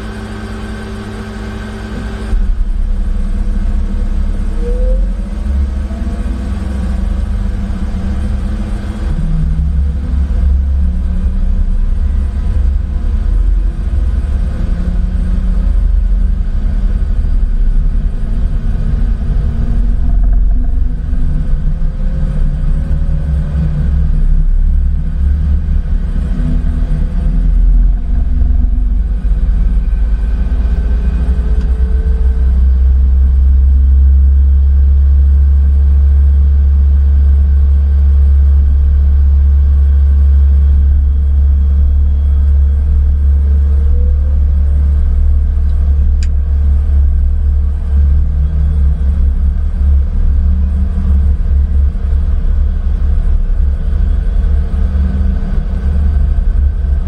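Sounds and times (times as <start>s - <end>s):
faint rising whines: 0.0s - 35.8s
cockpit rumble: 0.0s - 57.0s.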